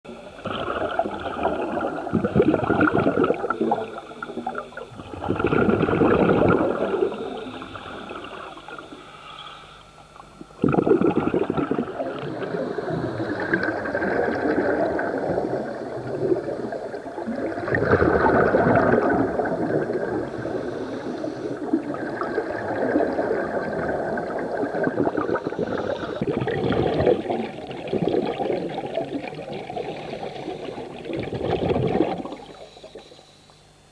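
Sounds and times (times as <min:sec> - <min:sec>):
gurgling exhaled bubbles: 0:00.1 - 0:09.0, 0:10.1 - 0:33.1
diver breathing through regulator: 0:20.2 - 0:21.9, 0:25.1 - 0:27.4.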